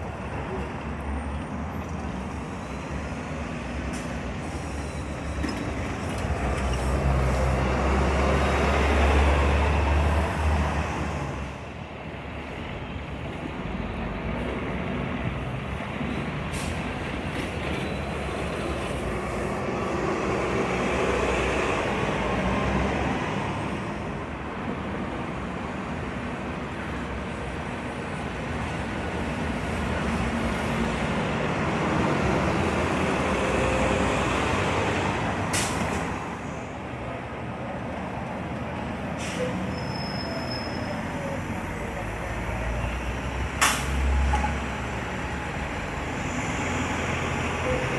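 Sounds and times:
buses driving past: 0.0 - 47.9
street traffic: 0.0 - 47.9
high squeal: 39.3 - 41.4.

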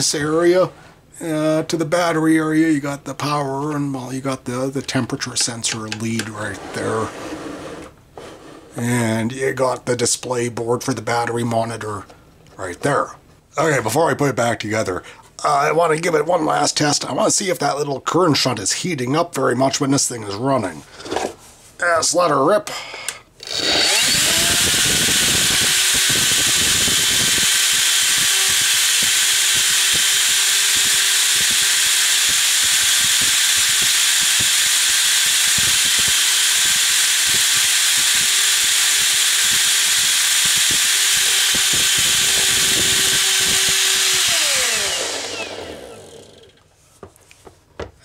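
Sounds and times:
vacuum motor whining: 23.4 - 46.6.

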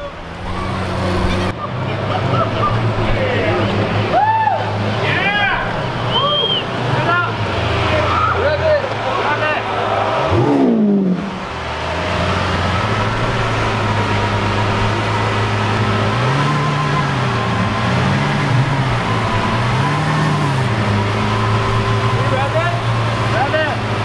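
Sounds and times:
engine idling: 0.0 - 24.0
engine throttle blips: 0.0 - 24.0.

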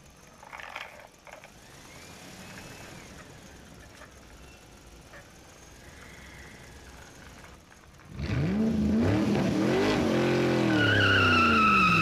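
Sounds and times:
toy truck whir: 0.2 - 4.5.

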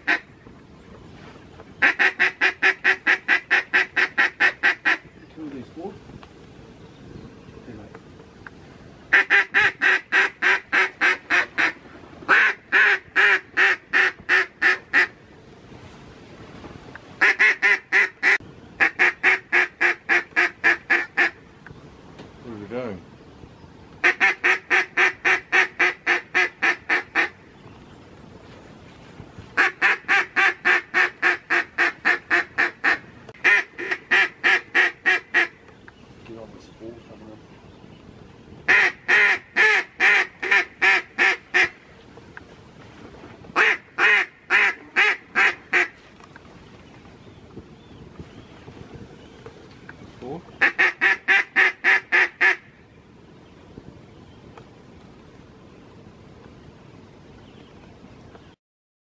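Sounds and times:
duck call quacks: 0.0 - 0.2, 1.8 - 5.0, 9.1 - 15.1, 17.2 - 21.4, 24.0 - 27.3, 29.6 - 35.5, 38.7 - 41.7, 43.6 - 45.9, 50.6 - 52.6
duck quacking: 1.8 - 5.0, 9.1 - 15.1, 50.6 - 52.6.

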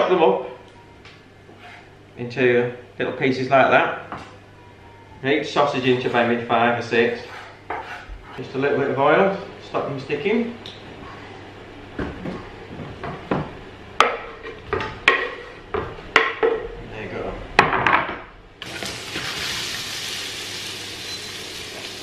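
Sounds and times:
knife scraping wooden board: 1.5 - 1.9, 7.2 - 8.4
sausage sizzling in oil: 18.6 - 22.0.

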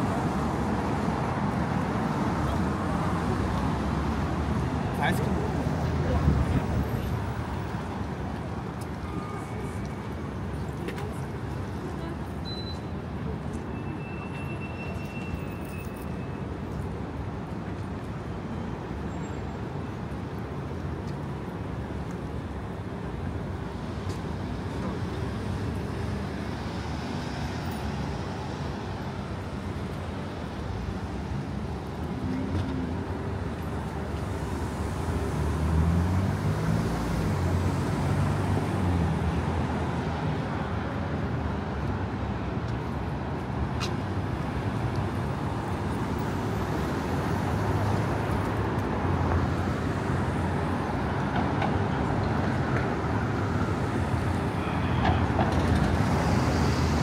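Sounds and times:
passing cars and buses: 0.0 - 57.0.

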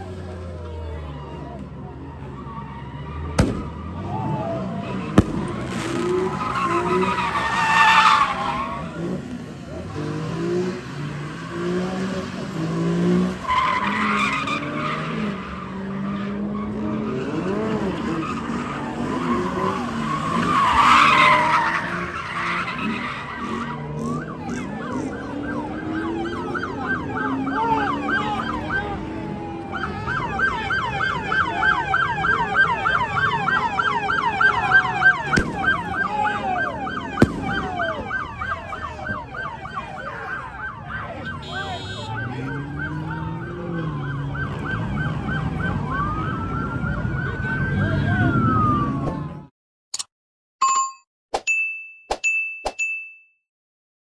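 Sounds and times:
engines revving: 0.0 - 49.5
police siren yelping and wailing: 0.0 - 49.5.

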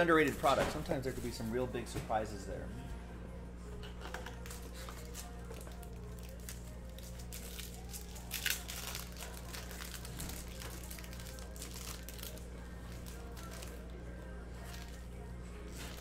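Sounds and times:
foil wrapper crinkling: 4.4 - 13.8.

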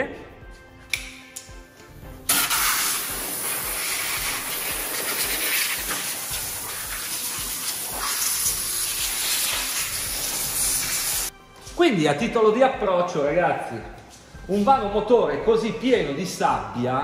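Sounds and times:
compressed air blow gun hissing: 2.3 - 11.3.

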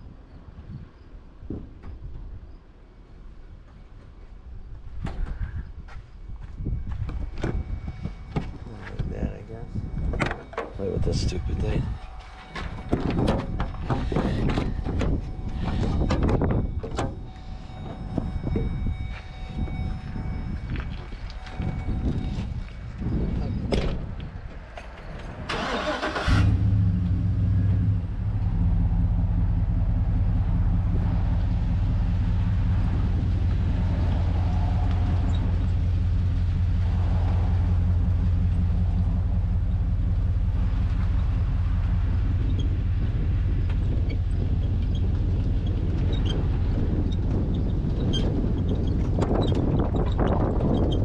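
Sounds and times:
pickup truck engine starting and running: 25.2 - 51.0.

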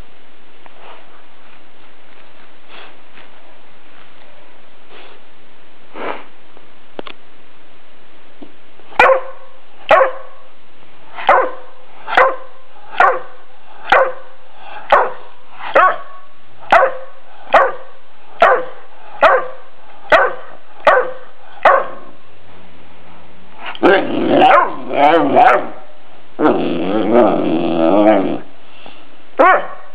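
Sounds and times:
puppy barking: 9.0 - 10.4, 11.2 - 22.1, 23.8 - 25.8, 29.4 - 29.9
puppy moaning call: 23.7 - 25.7, 26.4 - 28.5.

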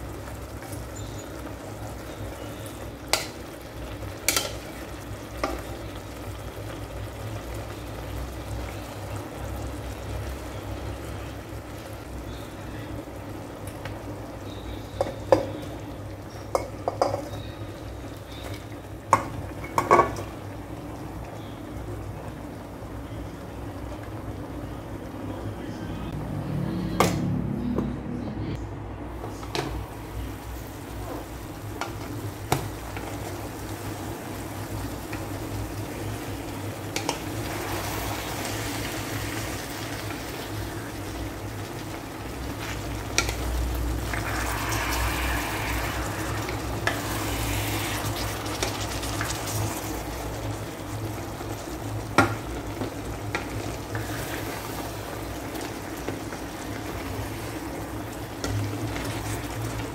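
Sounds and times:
food sizzling: 0.0 - 25.2, 29.2 - 59.9
steady low hum: 40.7 - 52.0.

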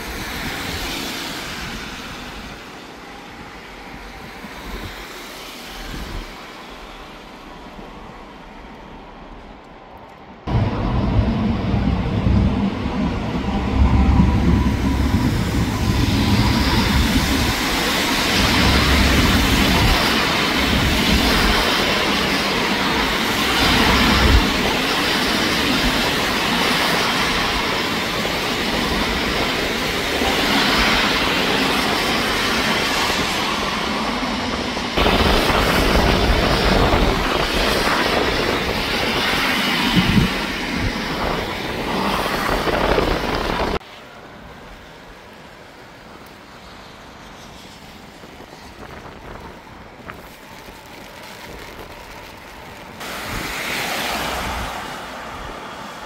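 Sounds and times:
tram rumbling past: 0.0 - 56.0
road traffic: 26.5 - 56.0.

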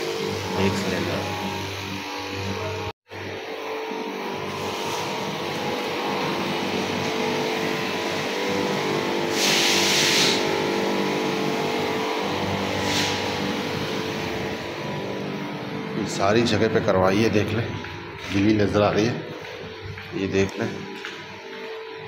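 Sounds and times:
steady machine hum: 0.0 - 22.0
sprayer nozzle hissing: 9.3 - 10.5.

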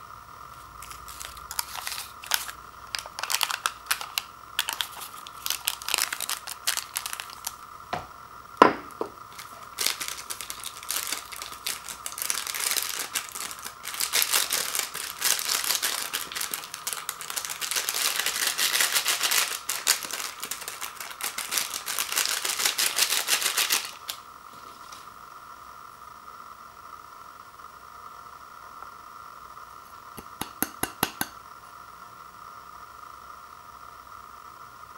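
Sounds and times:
foil packet crinkling: 0.5 - 7.7, 8.8 - 25.1.

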